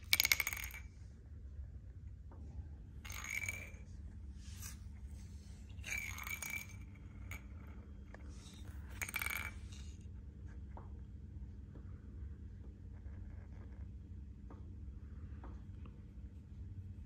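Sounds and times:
plastic cap clattering on tile: 0.0s - 0.8s, 3.1s - 3.8s, 5.8s - 9.9s.

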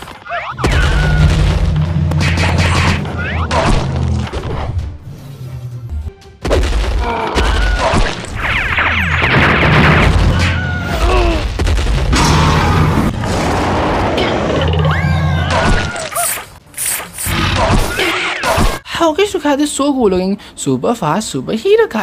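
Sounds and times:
cartoon booms and crashes: 0.6s - 4.0s, 6.5s - 14.6s
bass-heavy background music: 0.6s - 10.8s.

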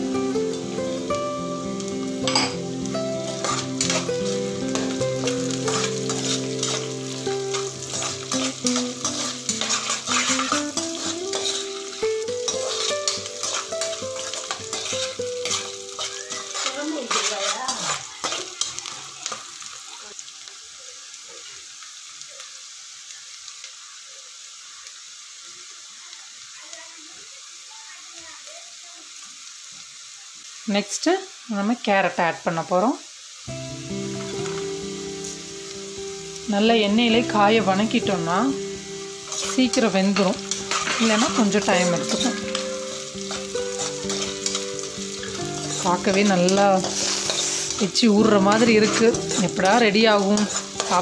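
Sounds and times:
soft background music: 0.0s - 16.5s, 33.5s - 51.0s
vegetables sizzling in oil: 0.0s - 51.0s
spoon scraping a pan: 1.8s - 19.6s, 37.2s - 51.0s.

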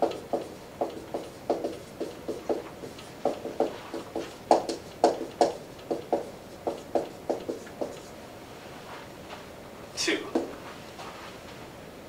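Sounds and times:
marker writing on whiteboard: 0.0s - 8.2s, 10.0s - 10.7s.

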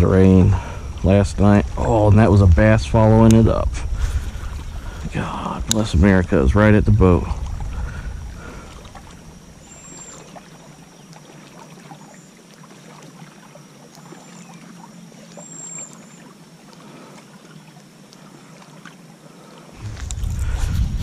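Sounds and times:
water lapping against hull: 0.0s - 21.0s
small ticks: 16.7s - 19.0s.

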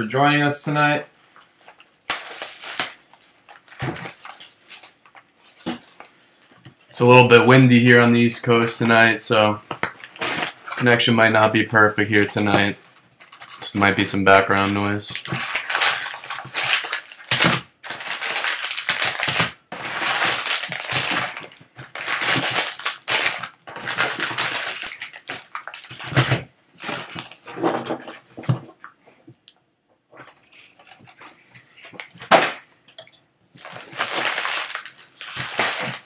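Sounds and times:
foil packs crinkling: 1.4s - 6.1s, 9.8s - 11.4s, 12.1s - 28.2s, 33.6s - 36.0s.

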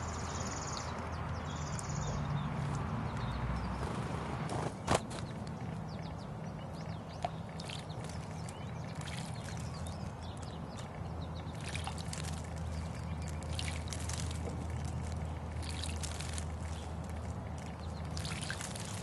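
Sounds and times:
bird splashing in water: 4.7s - 19.0s.

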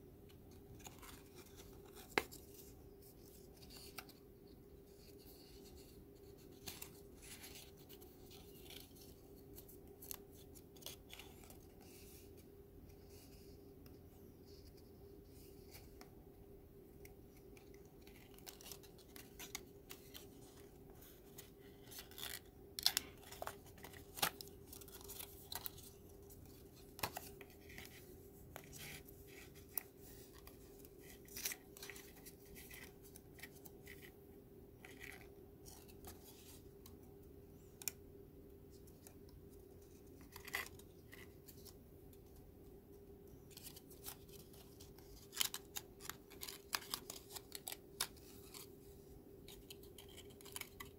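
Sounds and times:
paper card folding crackles: 0.5s - 16.1s, 17.0s - 34.2s, 34.8s - 38.0s, 38.7s - 42.5s, 43.3s - 50.9s.

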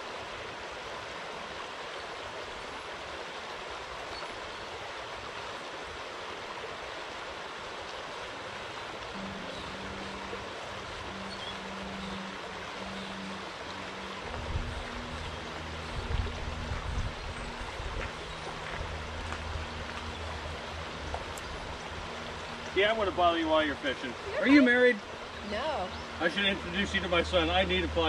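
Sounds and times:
stream rushing over rocks: 0.0s - 28.0s
faint low hum: 8.1s - 28.0s.

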